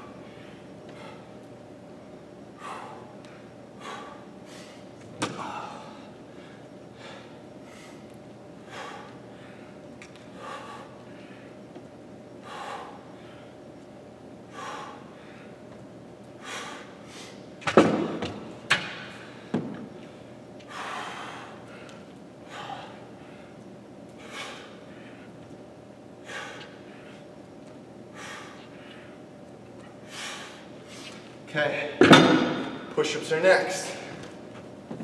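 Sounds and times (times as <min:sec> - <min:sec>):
man breathing heavily: 0:00.0 - 0:01.4, 0:02.5 - 0:13.7, 0:14.4 - 0:17.5, 0:19.1 - 0:25.5, 0:26.1 - 0:27.4, 0:28.0 - 0:31.3.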